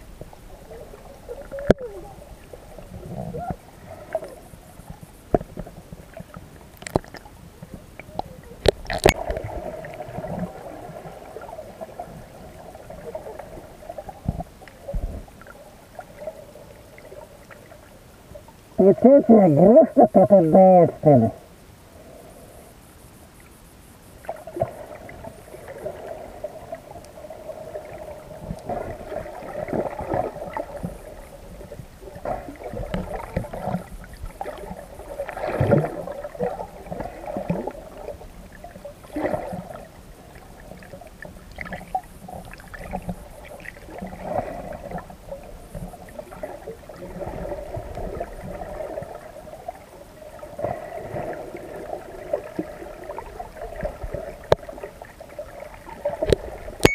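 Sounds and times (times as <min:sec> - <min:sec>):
underwater swishes: 0:00.0 - 0:56.9
underwater water gurgling: 0:00.0 - 0:56.9
short underwater clicks: 0:06.8 - 0:07.3, 0:08.0 - 0:09.4.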